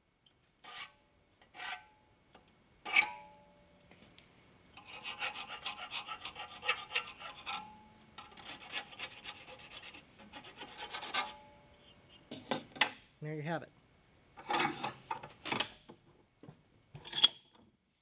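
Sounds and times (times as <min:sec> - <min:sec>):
hand file rasping on brass: 0:04.8 - 0:11.4.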